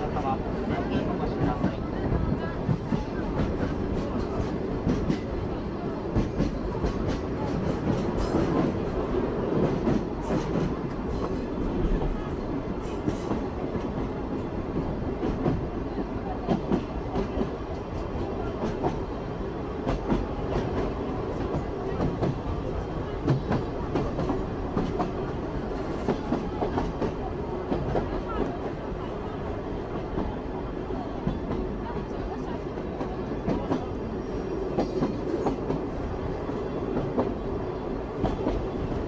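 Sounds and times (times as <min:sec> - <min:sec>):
train carriages rumbling: 0:00.0 - 0:39.0.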